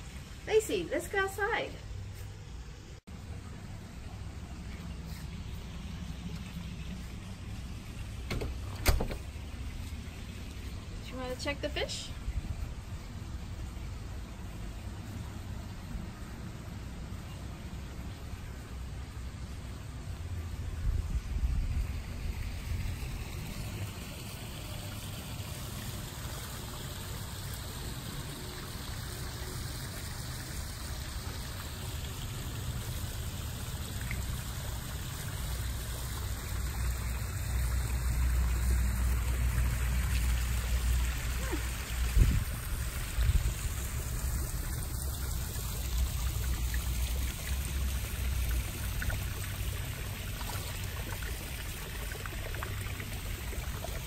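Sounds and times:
water splashing down rocks: 22.0 - 54.0.

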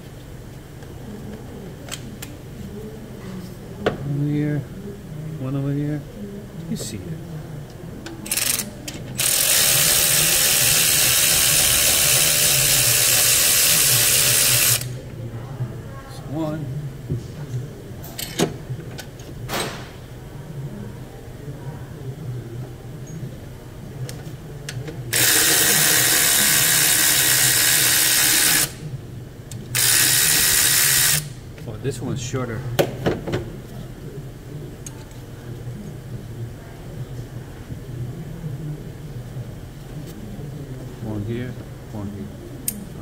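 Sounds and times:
power ratchet spinning: 8.2 - 15.0, 25.1 - 28.8, 29.7 - 31.3.

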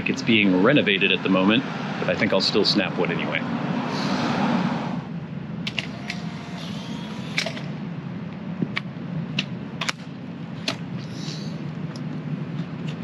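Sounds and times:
low street noise: 0.0 - 13.0
camera motor whir: 5.7 - 7.7.

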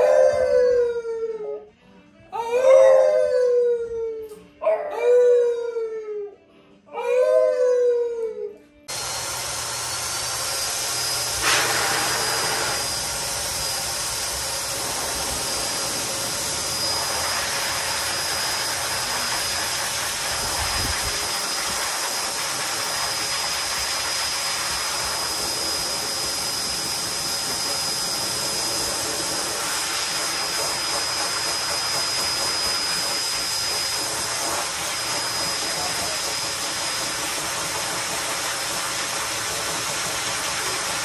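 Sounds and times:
dog howling: 0.0 - 1.7, 2.3 - 8.7
pet dryer blowing: 8.9 - 41.0.

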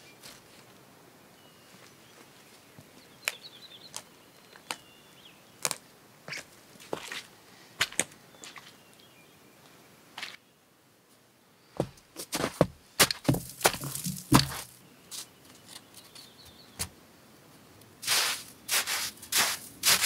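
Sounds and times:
hands crunching snow: 12.3 - 15.3, 18.0 - 20.0
scraping scoops of snow: 18.0 - 20.0.

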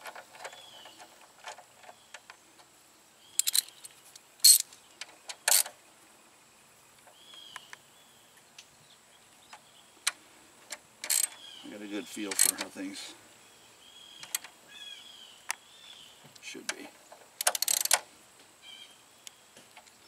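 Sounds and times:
metal tools clinking: 3.4 - 3.8, 4.4 - 4.6, 5.4 - 5.7, 11.0 - 11.4, 12.1 - 12.8, 17.4 - 18.0.

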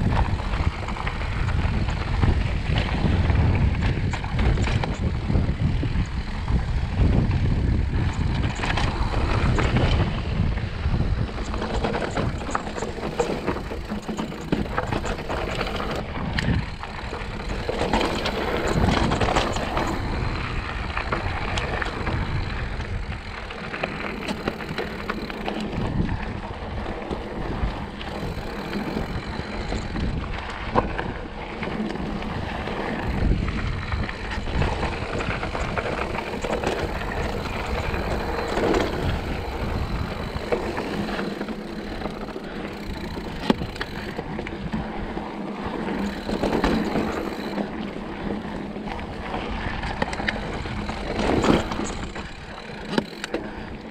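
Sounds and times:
bike rattling over bumps: 0.0 - 53.9
bike tyres crunching on dirt: 0.0 - 53.9
wind rumble on microphone: 0.0 - 53.9.

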